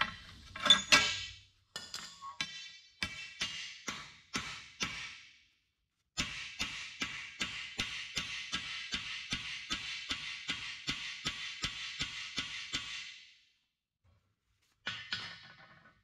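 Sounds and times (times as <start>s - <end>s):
hammer blows ringing on anvil: 6.2s - 13.1s.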